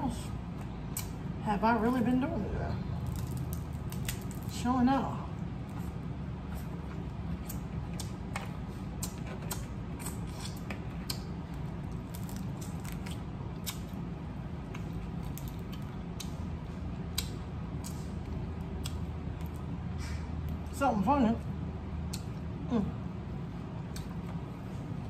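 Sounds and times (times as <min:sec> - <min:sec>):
crab shells cracking: 0:03.0 - 0:04.5, 0:11.9 - 0:14.0, 0:14.8 - 0:16.4.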